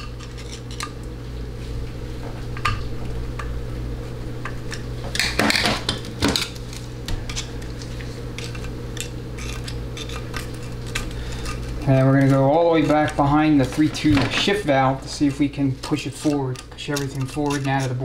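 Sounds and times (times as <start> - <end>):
steady low hum: 0.0 - 18.0
metal pick clicking and scraping: 16.2 - 18.0.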